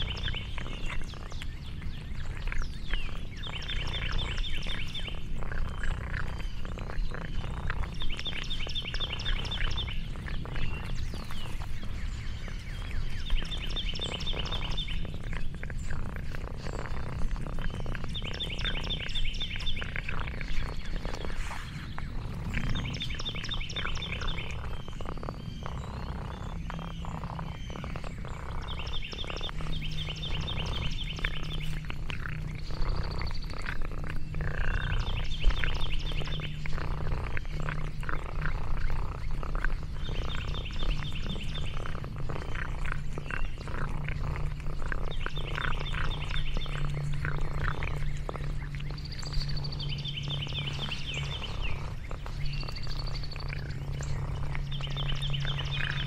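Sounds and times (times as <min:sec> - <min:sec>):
cat purring: 0:00.0 - 0:56.0
bird trilling: 0:20.7 - 0:36.5.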